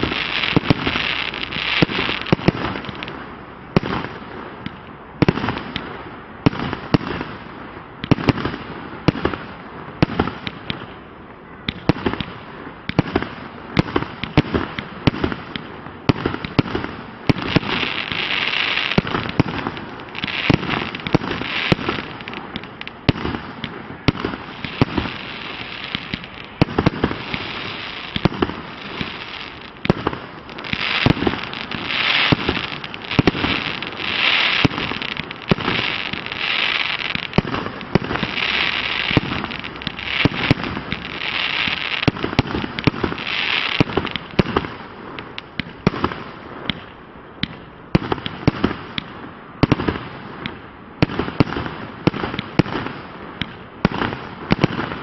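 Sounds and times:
fireworks hissing: 0.0 - 4.2, 16.3 - 46.8
fireworks launch shots and bursts: 0.0 - 55.0.

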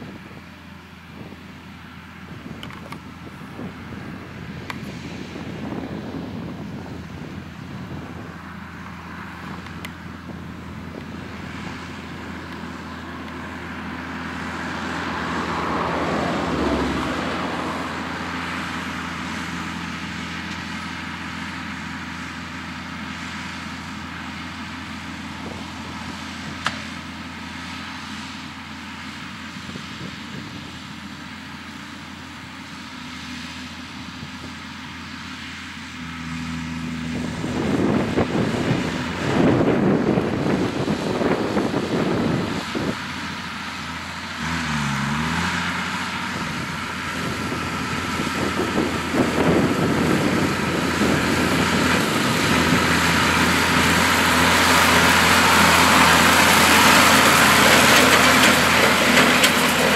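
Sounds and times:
wind gusts on microphone: 0.0 - 19.6, 37.0 - 43.7, 45.6 - 59.4
tractor engine running: 0.0 - 59.9.

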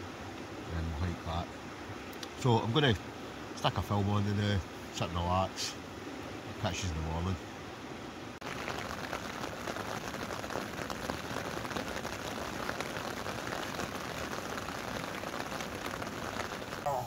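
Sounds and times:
rain on tent fabric: 8.4 - 17.0.

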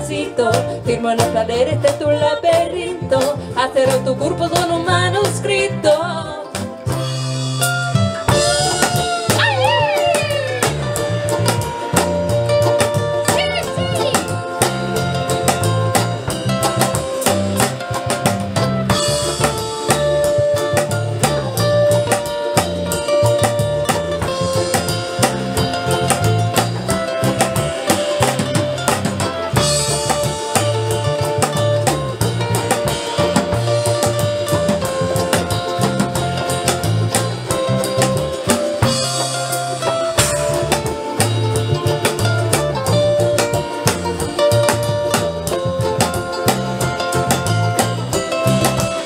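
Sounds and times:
bass line: 0.0 - 49.0
held melody line: 0.0 - 49.0
ukuleles strumming: 0.0 - 49.0
drum beat: 6.5 - 49.0.

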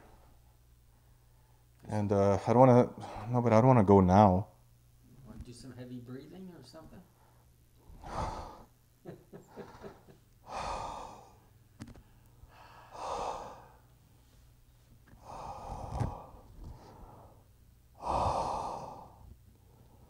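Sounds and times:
heavy breathing into microphone: 7.2 - 8.7, 15.2 - 20.0.

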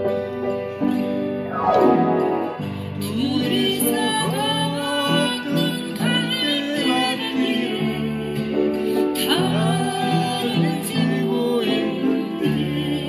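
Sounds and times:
upright piano: 0.6 - 3.6.

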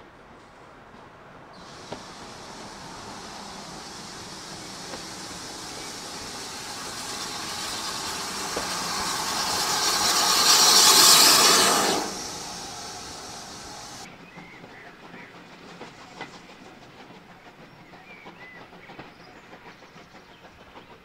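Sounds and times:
coaches rolling past: 1.6 - 14.1
steam locomotive hissing: 1.6 - 21.0.

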